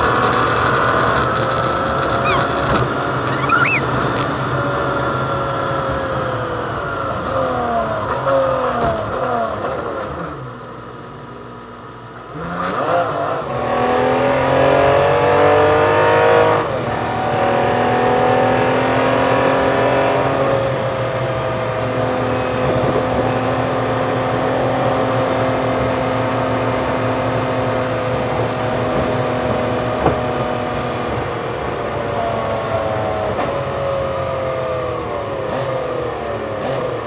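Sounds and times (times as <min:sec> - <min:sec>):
sped-up truck engine: 0:00.8 - 0:04.2.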